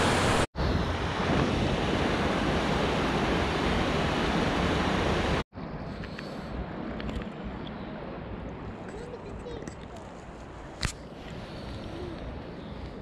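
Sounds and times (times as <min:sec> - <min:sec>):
river water rushing: 0:00.0 - 0:05.4.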